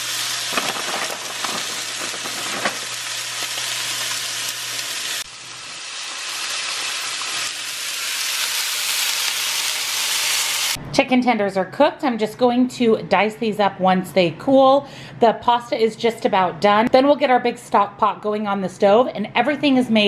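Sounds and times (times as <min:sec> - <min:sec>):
chicken sizzling in a skillet: 0:00.0 - 0:10.8.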